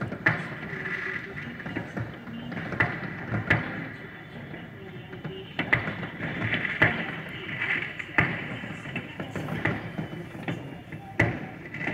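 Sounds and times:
distant fireworks crackling: 0.0 - 11.9
firework bangs: 0.0 - 11.9.

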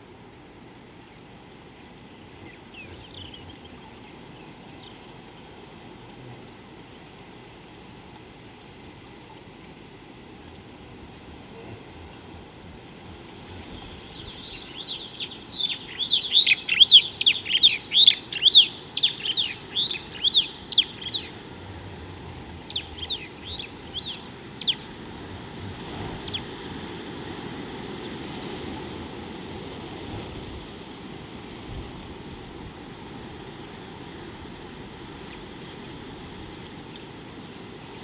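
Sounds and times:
background hiss: 0.0 - 38.0
bird chirping: 13.8 - 21.4, 22.6 - 24.9.

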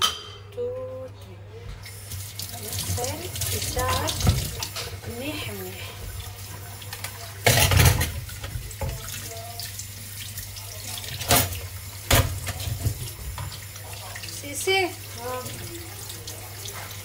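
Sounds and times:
water splashing: 1.9 - 17.0.

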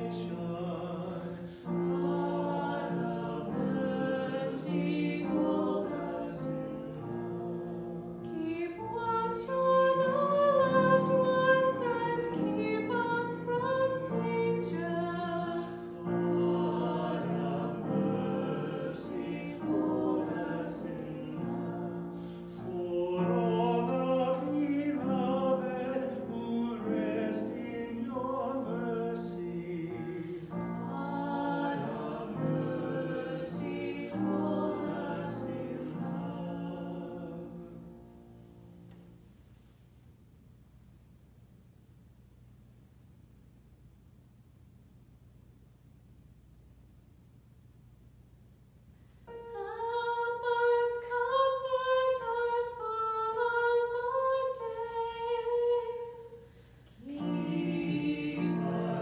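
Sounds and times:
woman and man singing: 0.0 - 35.7.

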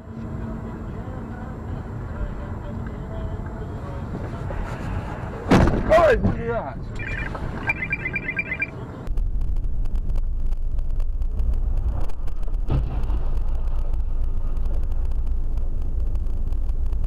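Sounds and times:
road and engine rumble: 0.0 - 17.0.

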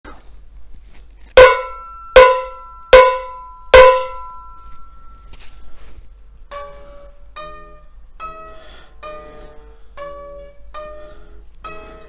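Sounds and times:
cowbell struck with drumstick: 1.4 - 4.6.

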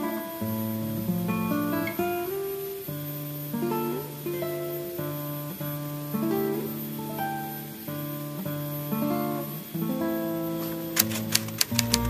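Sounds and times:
acoustic guitar music: 0.0 - 12.0.

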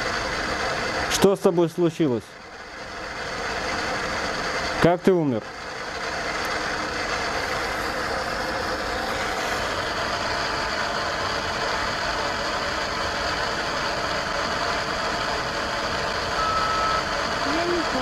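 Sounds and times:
short steady beep: 16.4 - 17.1.

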